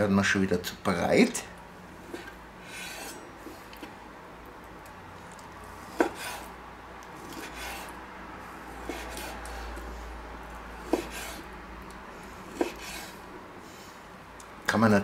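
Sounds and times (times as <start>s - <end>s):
knife slicing raw meat: 5.9s - 6.5s, 7.2s - 8.0s, 8.7s - 9.8s, 10.8s - 11.5s, 12.4s - 13.2s.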